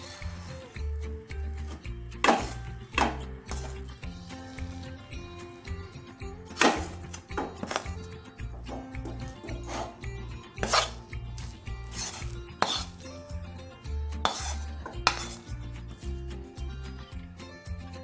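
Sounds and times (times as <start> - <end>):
background music with low beat: 0.0 - 18.0
spoon scraping metal pan: 1.6 - 5.0, 6.5 - 13.4, 14.1 - 16.1
metal clanks on steel plate: 6.5 - 11.0, 14.2 - 15.4.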